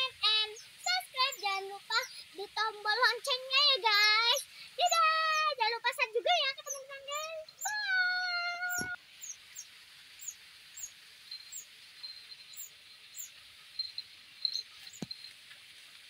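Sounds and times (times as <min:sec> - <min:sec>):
child yelling: 0:00.9 - 0:09.0
faint high chirps: 0:06.6 - 0:15.4.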